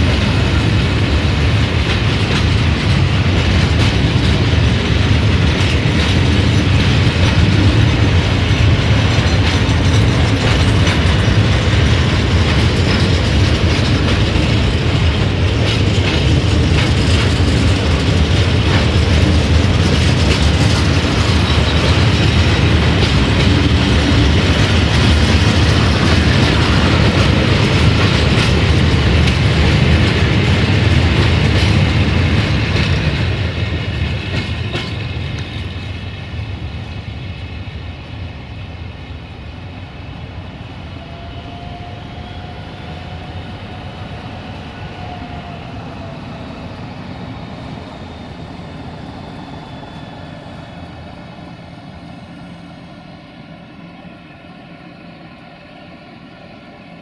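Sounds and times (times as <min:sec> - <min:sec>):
freight train wheels clattering: 0:00.0 - 0:38.0.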